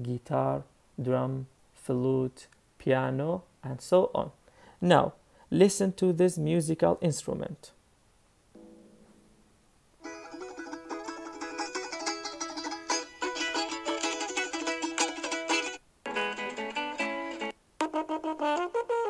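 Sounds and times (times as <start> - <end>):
plucked string instrument: 8.6 - 19.0.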